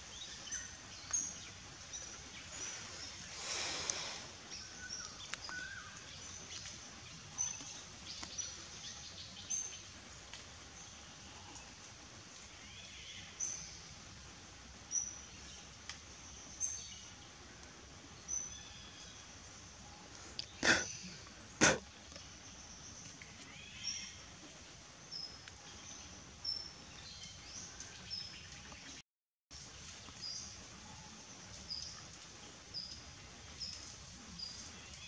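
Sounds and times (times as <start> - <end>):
steady background hiss: 0.0 - 29.0, 29.6 - 35.0.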